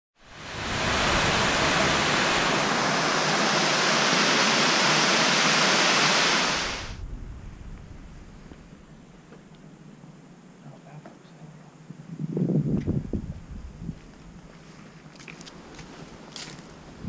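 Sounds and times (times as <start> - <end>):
waterfall rushing: 0.2 - 7.0.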